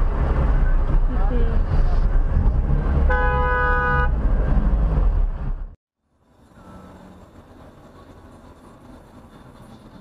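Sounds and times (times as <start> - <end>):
car driving road noise: 0.0 - 10.0
rumbling traffic: 0.0 - 10.0
car horn: 3.0 - 4.2, 6.5 - 7.1.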